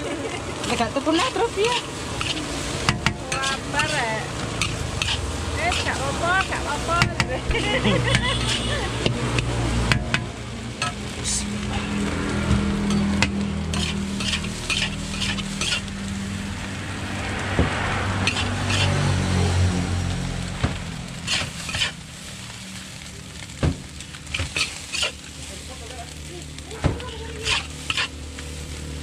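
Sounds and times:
fried rice sizzling in a wok: 0.0 - 29.0
metal spatula scraping a wok: 0.6 - 10.2, 11.6 - 16.5, 18.1 - 19.3, 21.1 - 22.8, 24.1 - 26.2, 27.0 - 28.8.

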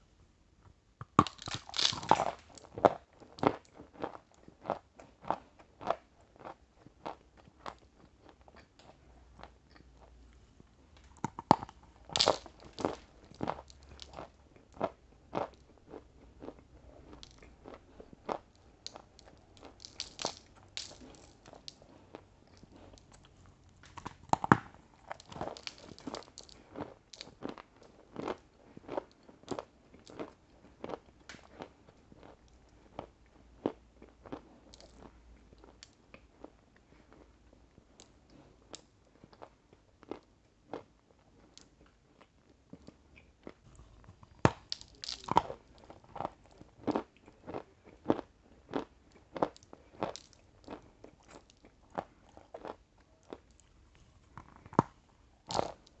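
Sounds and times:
crunchy bites: 1.0 - 7.8, 11.0 - 21.9, 22.6 - 27.6, 43.4 - 56.0
crunchy chewing: 1.2 - 10.2, 11.1 - 37.2, 42.2 - 56.0.

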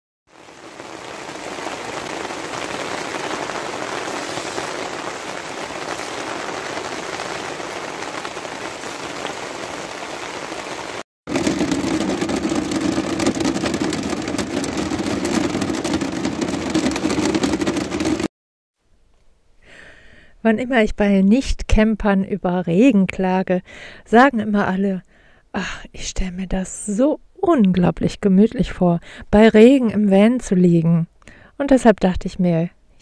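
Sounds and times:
rain drumming on a hard surface: 0.3 - 18.3
rain falling on a tarp: 0.3 - 18.3.

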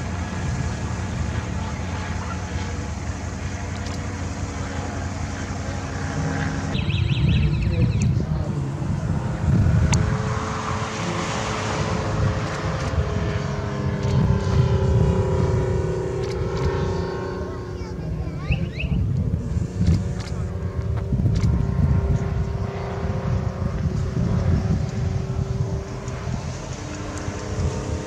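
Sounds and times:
ultralight aircraft engine: 0.0 - 28.0.

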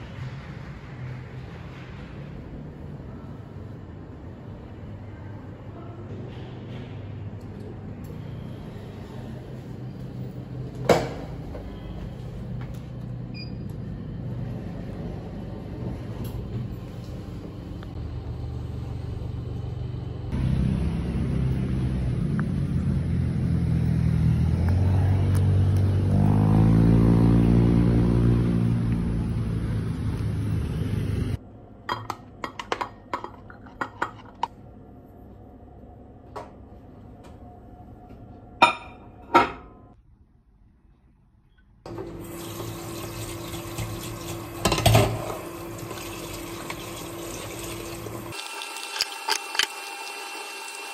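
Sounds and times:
elevator rumble with humming tone: 11.4 - 25.5.

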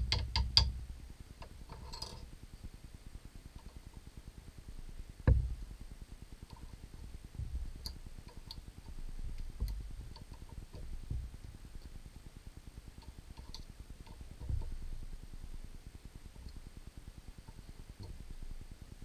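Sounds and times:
light thumps: 5.3 - 5.6.

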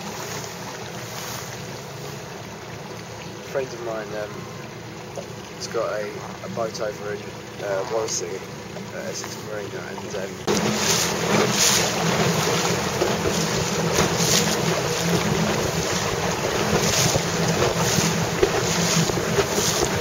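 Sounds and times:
steady low hum: 0.0 - 20.0
wind buffeting microphone: 10.5 - 20.0.

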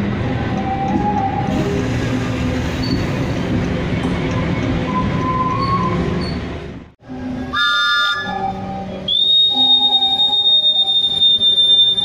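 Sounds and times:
railway whistle blast: 7.5 - 12.0.

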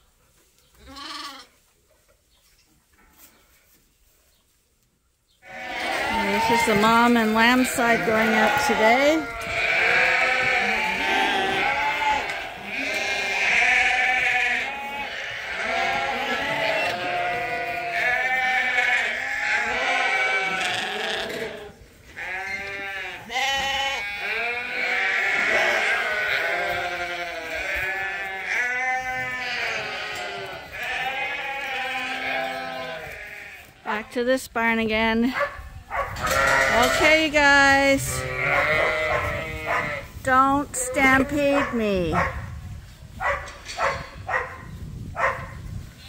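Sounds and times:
sheep and lambs bleating: 0.8 - 1.6, 5.4 - 34.4, 36.2 - 42.2.

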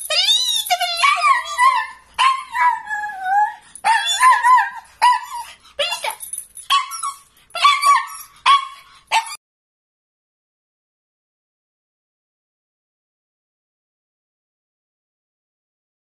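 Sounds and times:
small dog yipping: 0.0 - 9.4.

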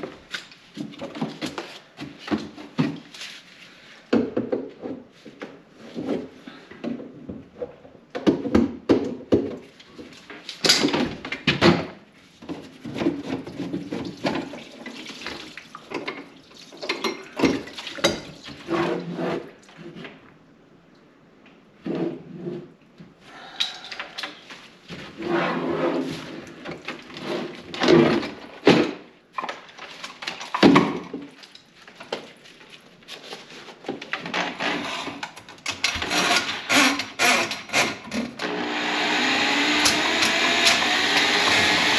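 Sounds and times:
water sloshing in a sink: 13.3 - 18.7.

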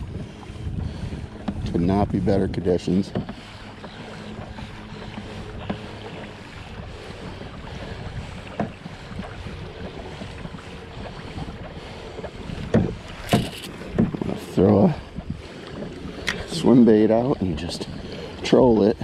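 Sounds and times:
water swishing along hull: 0.0 - 19.0
wind on microphone: 0.0 - 19.0.

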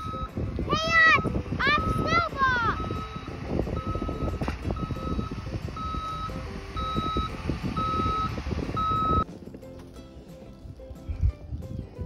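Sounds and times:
truck reversing alarm beeping: 0.0 - 0.4, 1.0 - 9.3
low rumble: 0.0 - 12.0.

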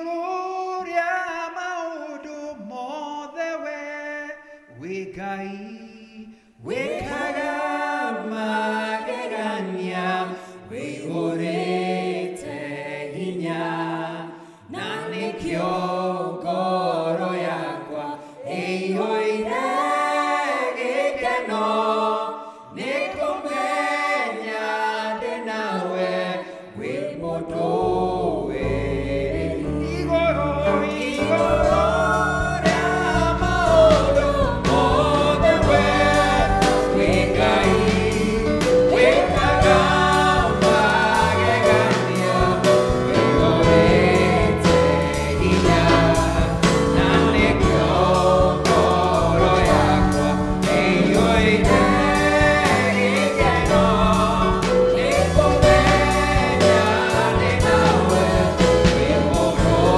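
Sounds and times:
man singing into microphone: 0.0 - 6.4
keyboard bass notes: 27.5 - 59.9.

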